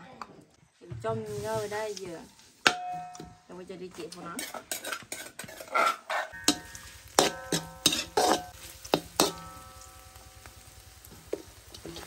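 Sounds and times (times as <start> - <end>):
utensil knocking and scraping wok: 1.2 - 12.0
wok ringing: 2.6 - 3.5, 4.4 - 12.0
paste sizzling in wok: 4.4 - 12.0.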